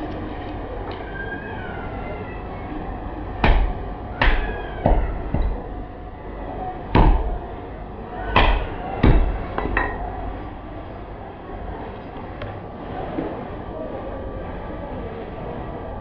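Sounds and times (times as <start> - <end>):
hatchet chopping meat on wood: 3.4 - 5.6, 7.0 - 7.4, 8.4 - 9.8.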